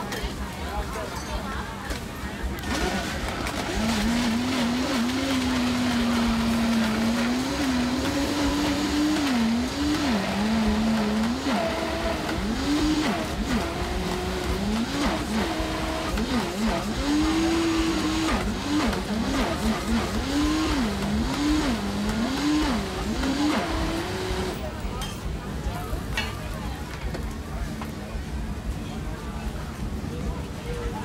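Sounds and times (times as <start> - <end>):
blender crushing ice: 2.6 - 24.6.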